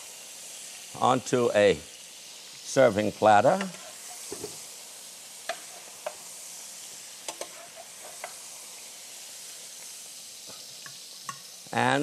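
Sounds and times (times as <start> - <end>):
leeks sizzling in skillet: 0.0 - 12.0
tongs clicking on pan: 3.6 - 4.4, 5.4 - 6.2, 7.2 - 8.4, 10.5 - 11.5.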